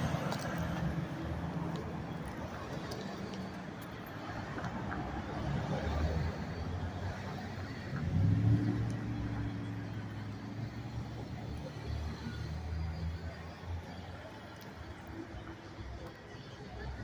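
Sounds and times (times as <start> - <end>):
road traffic: 0.0 - 17.0
vehicle engine accelerating: 5.2 - 14.0.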